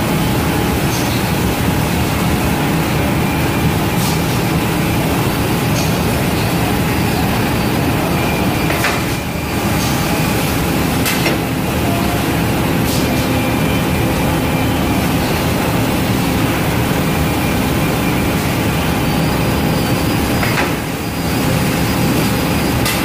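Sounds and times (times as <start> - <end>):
boring machine running: 0.0 - 23.0.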